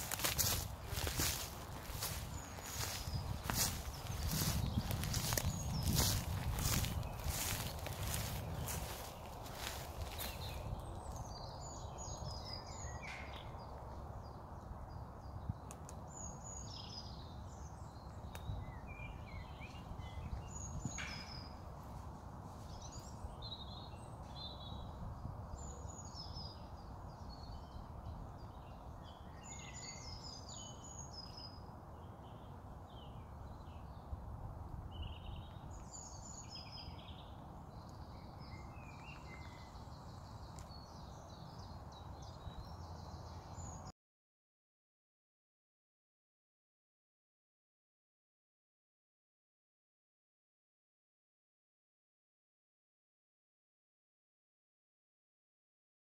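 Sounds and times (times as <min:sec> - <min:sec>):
songbirds singing: 0:00.0 - 0:43.9.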